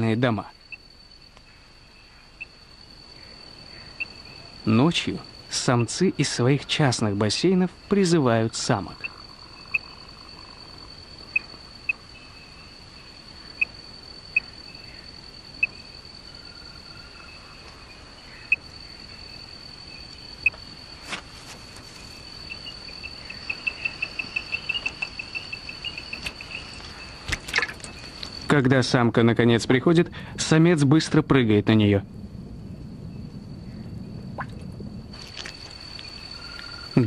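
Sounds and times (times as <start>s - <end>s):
tree frog calling: 0.0s - 21.0s, 22.0s - 28.6s, 35.2s - 37.0s
high insect trill: 0.0s - 37.0s.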